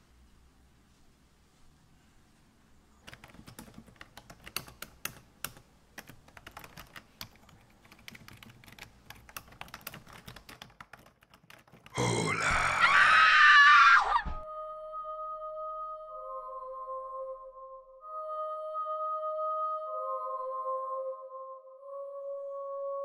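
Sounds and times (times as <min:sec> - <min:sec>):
laptop keyboard typing: 0:03.0 - 0:12.0.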